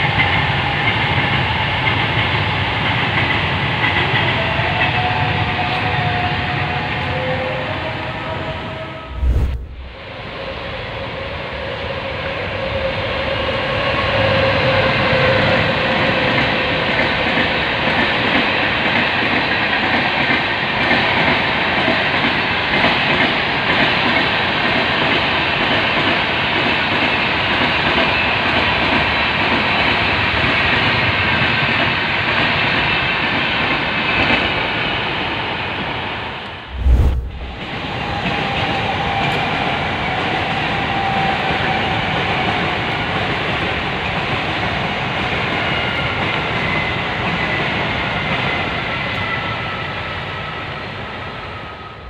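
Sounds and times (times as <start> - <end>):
train rumbling past: 8.8 - 10.3, 36.6 - 38.5
steady whine: 9.1 - 10.0, 36.7 - 37.8.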